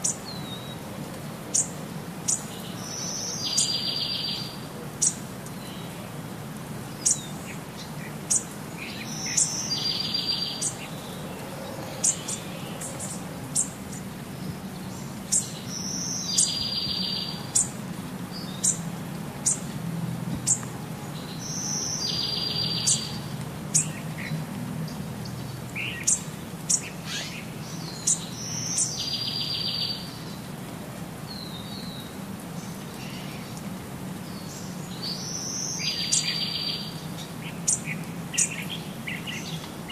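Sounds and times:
bird chirping: 2.3s - 5.9s, 7.0s - 19.6s, 20.4s - 24.3s, 25.2s - 30.4s, 34.3s - 39.9s.

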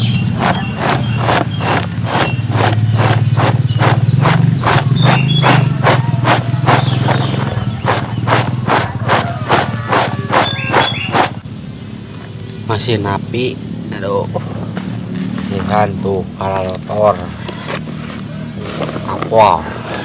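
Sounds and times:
pods rattling in winnowing tray: 0.0s - 11.4s
low engine hum: 0.0s - 20.0s.

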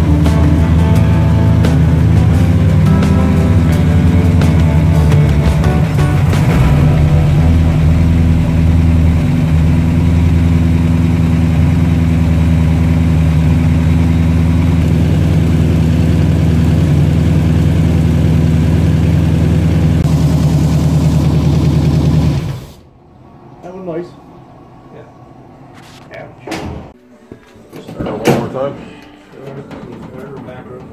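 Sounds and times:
vee-eight engine idling: 0.0s - 23.0s.

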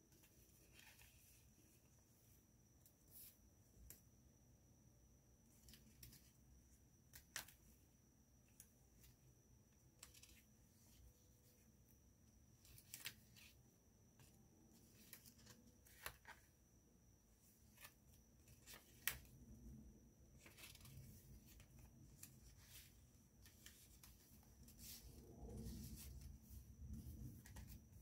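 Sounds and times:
paper pages rustling: 0.1s - 1.4s, 20.4s - 28.0s.

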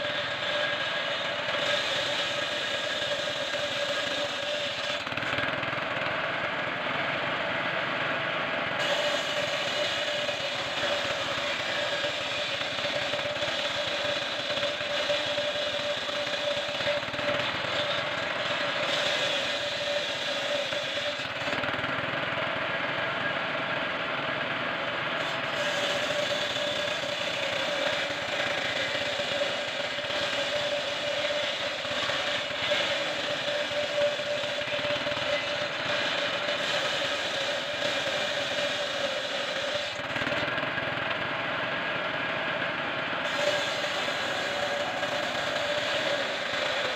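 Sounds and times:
saw ripping wooden plank: 0.0s - 5.6s, 8.8s - 21.7s, 25.2s - 40.4s, 43.2s - 46.9s.

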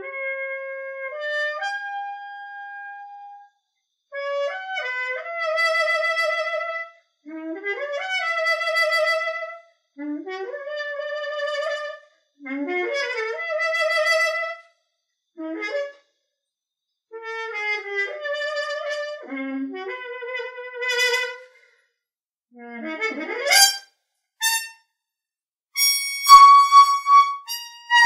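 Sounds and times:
muted trumpet melody: 17.4s - 21.4s, 23.2s - 23.8s, 24.4s - 24.8s, 25.8s - 28.0s.

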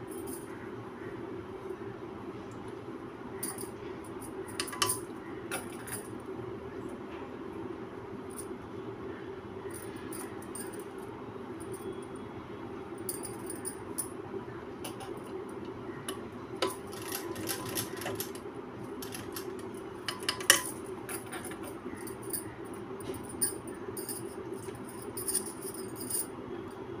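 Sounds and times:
bangles clinking: 3.4s - 6.1s, 9.7s - 11.0s, 13.0s - 14.2s, 14.8s - 26.4s.

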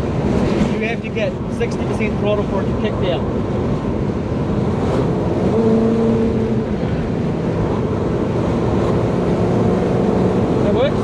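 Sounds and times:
road noise: 0.0s - 11.0s.

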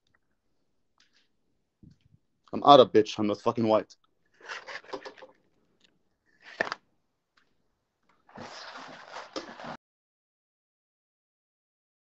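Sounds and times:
rustling and handling noises: 4.3s - 6.8s.

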